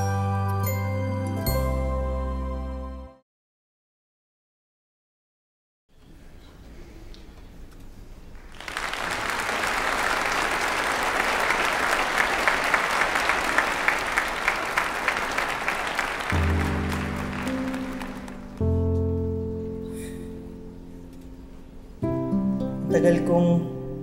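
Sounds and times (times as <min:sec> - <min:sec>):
background music with held notes: 0:00.0 - 0:03.2, 0:16.3 - 0:24.0
crowd applauding: 0:08.4 - 0:18.8.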